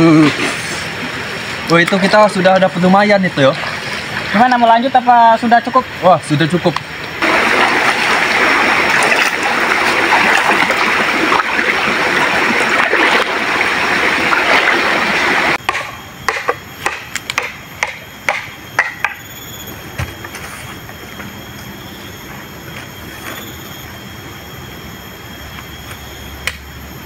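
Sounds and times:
river water rushing: 0:07.0 - 0:15.6.

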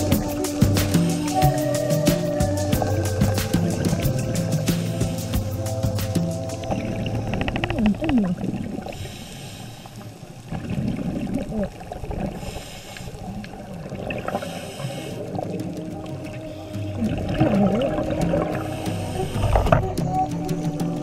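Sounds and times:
gurgling water: 0:00.0 - 0:21.0
diver breathing through regulator: 0:03.0 - 0:06.3, 0:08.9 - 0:10.2, 0:12.3 - 0:13.4, 0:14.3 - 0:15.4, 0:18.6 - 0:19.8.

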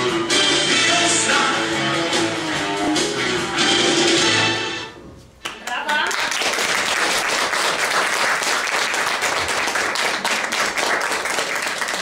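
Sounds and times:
audience applauding: 0:05.4 - 0:12.0.

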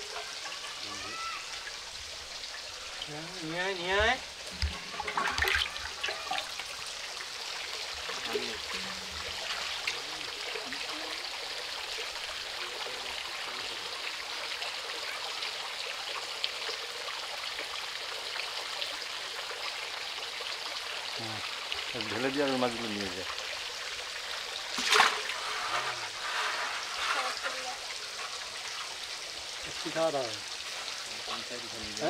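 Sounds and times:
water running steadily: 0:00.0 - 0:32.0
faint voice: 0:00.8 - 0:01.5.

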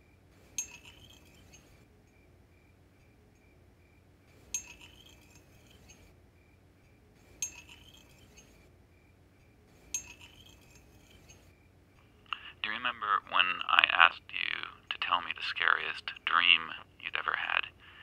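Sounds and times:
sharp glassy clinks: 0:00.6 - 0:01.8, 0:04.5 - 0:06.1, 0:07.4 - 0:08.7, 0:09.9 - 0:11.5.

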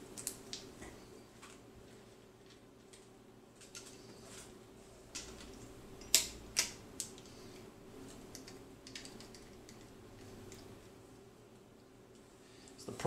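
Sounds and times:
metal stand parts clicking and clanking: 0:05.1 - 0:07.3, 0:08.3 - 0:10.7.

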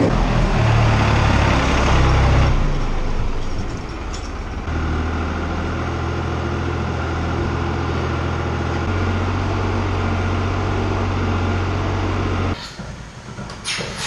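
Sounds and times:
tractor diesel engine running: 0:00.0 - 0:13.4.

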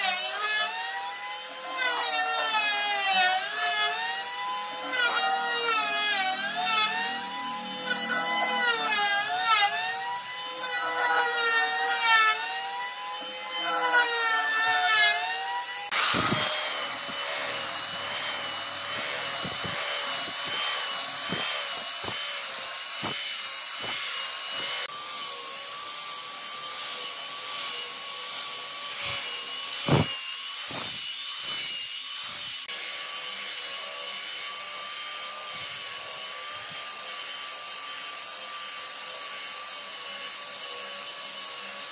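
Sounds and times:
belt sander on wood: 0:00.0 - 0:41.9
electric hand planer cutting: 0:00.0 - 0:41.9
sander knocking on wood: 0:15.9 - 0:24.9, 0:28.9 - 0:32.7.

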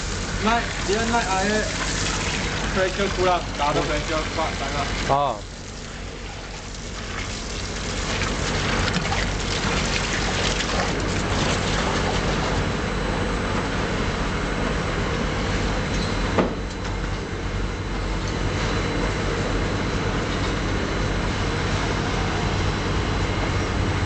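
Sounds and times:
water gushing from hose: 0:00.0 - 0:12.7
mortar pump mixer humming: 0:00.0 - 0:24.0.

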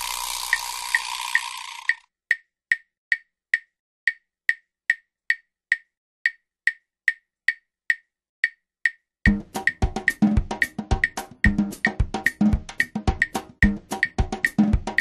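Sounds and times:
wood block clicks: 0:00.0 - 0:09.1.

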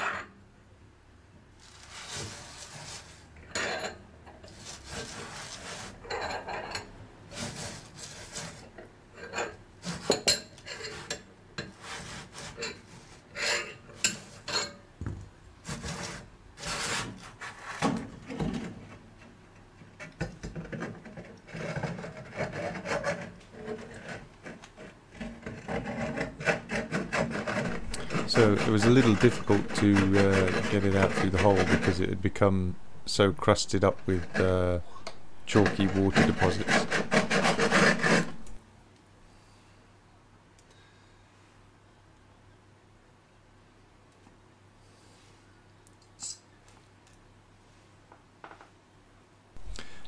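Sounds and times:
metal element scraping in opening: 0:27.6 - 0:32.1.

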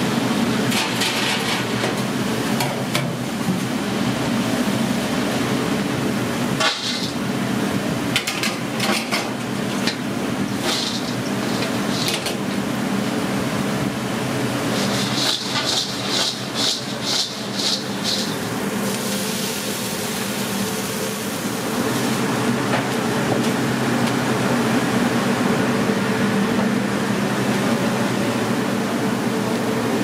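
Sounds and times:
kitchen ventilation hum: 0:00.0 - 0:30.0
fries rustling in steel bowl: 0:10.5 - 0:12.7, 0:14.4 - 0:20.8.

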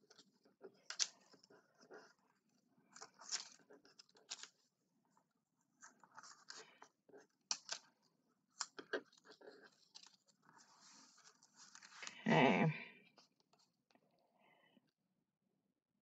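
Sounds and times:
cardstock rustling and scraping: 0:02.9 - 0:04.6, 0:08.6 - 0:12.1.

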